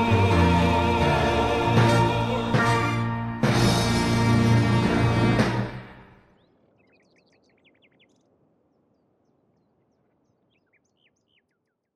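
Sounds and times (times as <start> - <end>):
faint bird chirps: 6.2 - 11.9.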